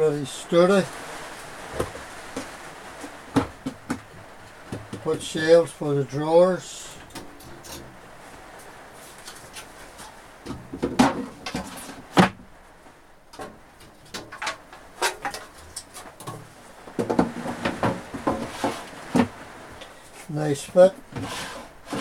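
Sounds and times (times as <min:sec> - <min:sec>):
drawers scraping and knocking: 0:01.7 - 0:05.3, 0:07.0 - 0:08.0, 0:09.0 - 0:12.4, 0:13.4 - 0:19.5, 0:20.6 - 0:22.0.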